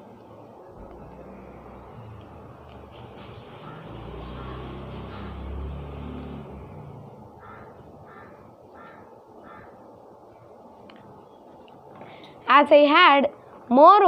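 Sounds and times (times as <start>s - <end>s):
low rumble: 0.7s - 8.4s
bird cawing: 1.0s - 10.0s.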